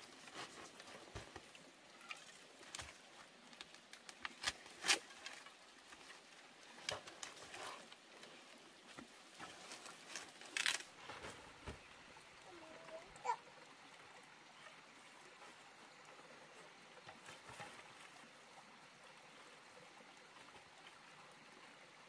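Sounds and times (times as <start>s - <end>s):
light snaps and crackles: 0.4s - 6.2s, 8.9s - 10.9s.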